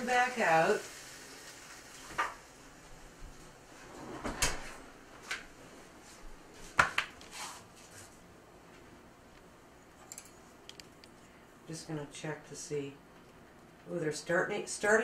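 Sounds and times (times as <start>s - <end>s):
oven door shutting: 3.8s - 4.8s.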